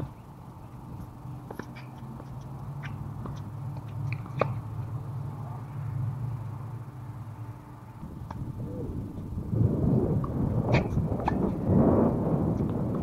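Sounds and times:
steady low rumble: 0.0s - 13.0s
distant ball bounces and hits: 1.4s - 4.7s
tennis ball struck by racket: 4.1s - 4.7s.

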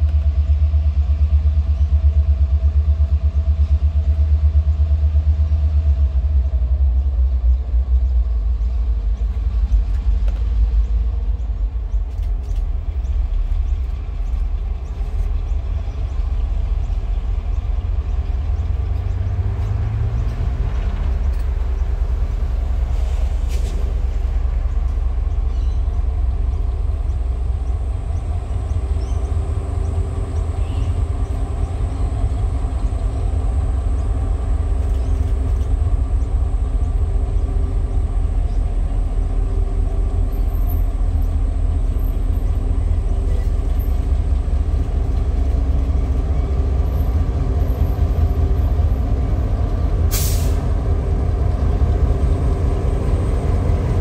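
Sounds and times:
locomotive engine rumble: 0.0s - 54.0s
short sharp hiss: 50.1s - 50.7s.

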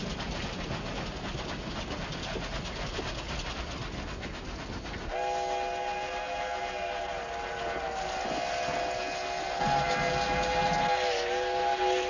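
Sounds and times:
steam train rattling: 0.0s - 12.0s
steam whistle chord: 5.1s - 12.0s.

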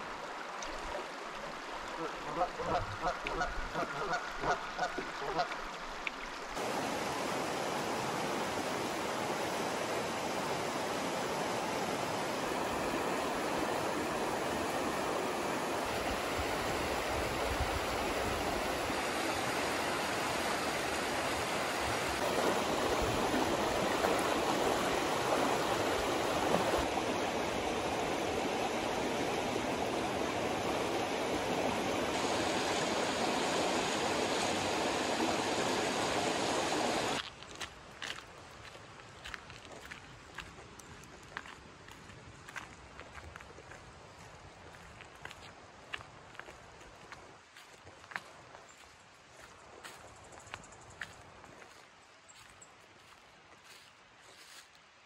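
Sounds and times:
creek rushing over rocks: 0.0s - 50.1s.

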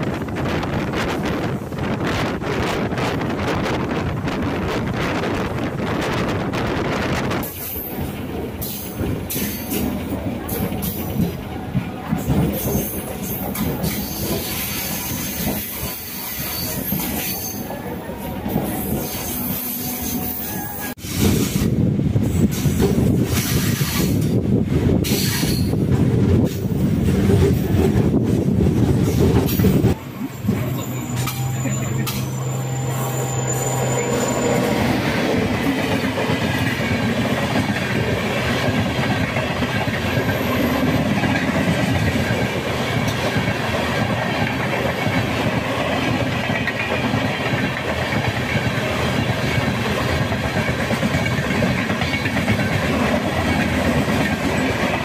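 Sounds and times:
train wheels clacking over rail joints: 7.2s - 17.7s, 22.4s - 32.6s, 34.4s - 55.0s.

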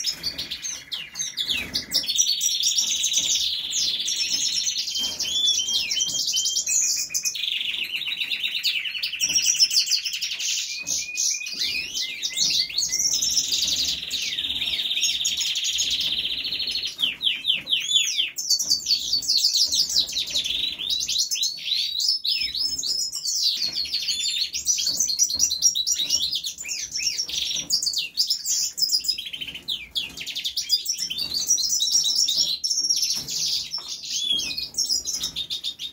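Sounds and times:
goldfinch twittering song: 0.0s - 35.9s.

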